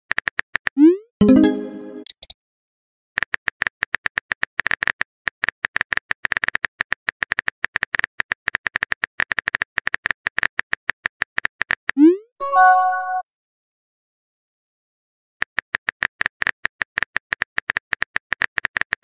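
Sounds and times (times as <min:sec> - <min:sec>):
keyboard typing clicks: 0:01.2 - 0:02.4.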